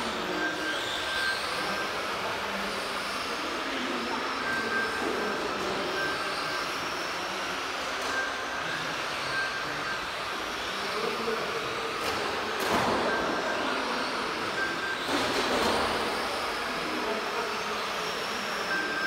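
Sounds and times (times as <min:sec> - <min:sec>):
electric motors whining: 0:00.0 - 0:19.0
short high beeps: 0:04.3 - 0:06.6, 0:08.0 - 0:10.2, 0:12.7 - 0:16.8, 0:18.6 - 0:19.0.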